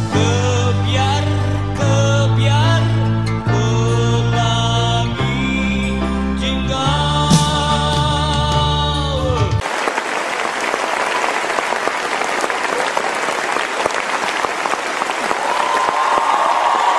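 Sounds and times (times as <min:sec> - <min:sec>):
audience applause: 0:09.6 - 0:16.9.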